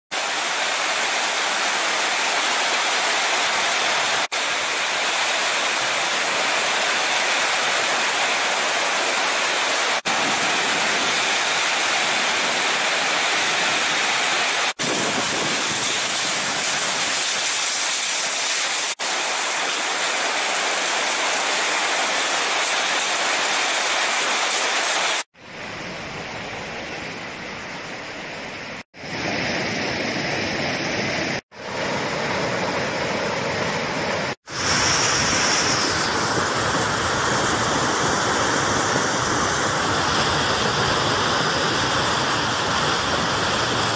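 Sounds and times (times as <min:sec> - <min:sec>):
floodwater flowing across road: 0:00.2 - 0:25.3
heavy rain on trees: 0:00.2 - 0:25.3, 0:34.4 - 0:43.9.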